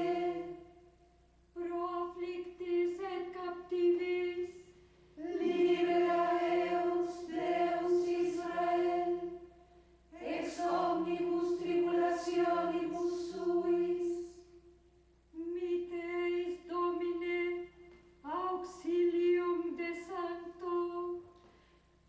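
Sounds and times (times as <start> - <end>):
women's choir chanting in unison: 0.0 - 0.8, 5.2 - 14.5.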